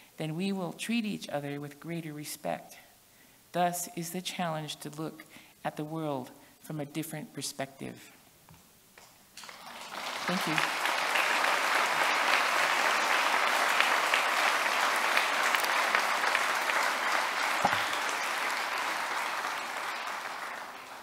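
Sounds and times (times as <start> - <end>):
audience applauding: 9.4 - 21.0.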